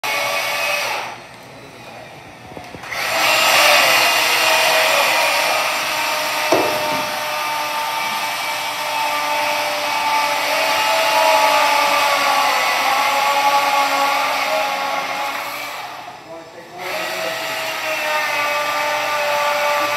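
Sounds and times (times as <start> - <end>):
electric chainsaw cutting ice: 0.0 - 1.2, 2.8 - 19.9
sharp knock: 6.4 - 7.3.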